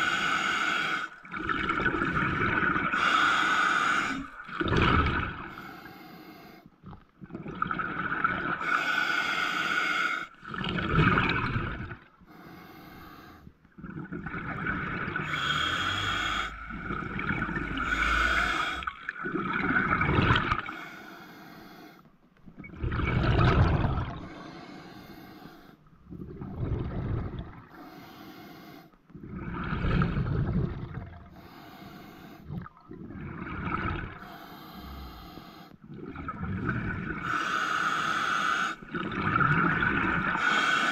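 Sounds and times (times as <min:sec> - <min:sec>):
exhaled bubbles underwater: 0:00.0 - 0:05.6, 0:06.8 - 0:08.9, 0:10.3 - 0:12.2, 0:13.5 - 0:20.8, 0:22.5 - 0:24.3, 0:25.9 - 0:27.8, 0:29.1 - 0:31.6, 0:32.4 - 0:40.9
regulator hissing inhale: 0:02.9 - 0:04.4, 0:12.3 - 0:13.5, 0:15.2 - 0:18.9, 0:24.3 - 0:25.8, 0:31.3 - 0:32.5, 0:34.2 - 0:35.8, 0:37.2 - 0:38.8, 0:40.4 - 0:40.9.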